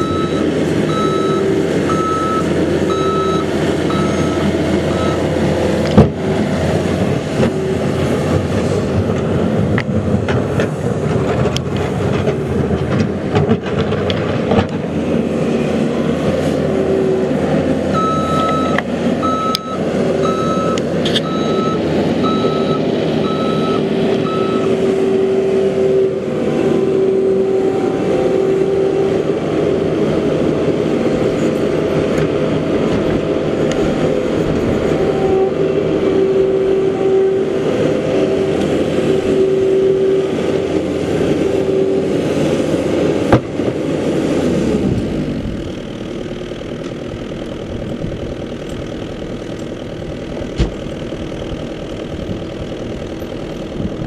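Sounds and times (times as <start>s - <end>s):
backup alarm beeping: 0.0s - 5.3s, 18.0s - 24.8s
loader engine running: 0.0s - 54.0s
steady whine: 0.0s - 54.0s.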